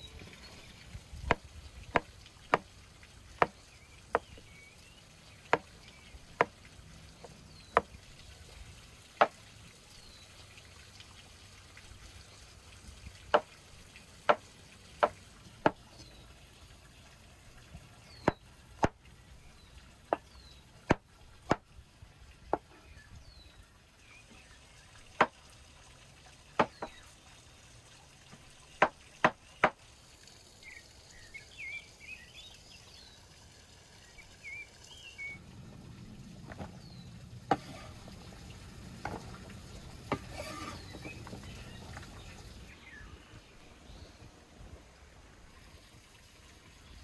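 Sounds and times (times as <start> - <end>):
cleaver chopping on wooden board: 1.3 - 2.7, 3.4 - 4.4, 26.6 - 27.0, 28.8 - 29.8.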